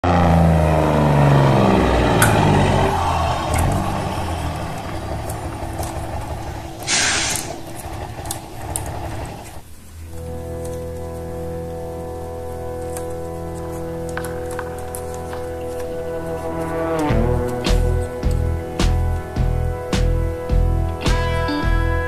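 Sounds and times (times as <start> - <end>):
diesel engine running down: 0.0 - 22.0
air brake hiss: 6.8 - 7.6
background music: 10.3 - 22.0.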